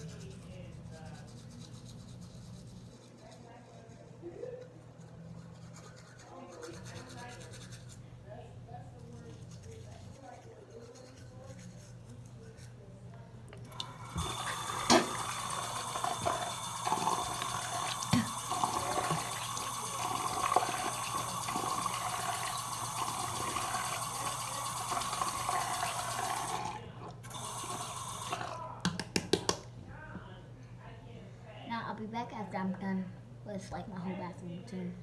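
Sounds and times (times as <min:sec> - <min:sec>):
water splashing into sink: 0:13.7 - 0:29.6.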